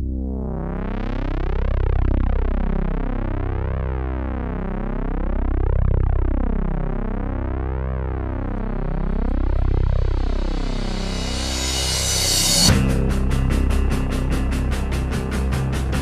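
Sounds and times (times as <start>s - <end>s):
synthesizer drone with whooshing sweep: 0.0s - 16.0s.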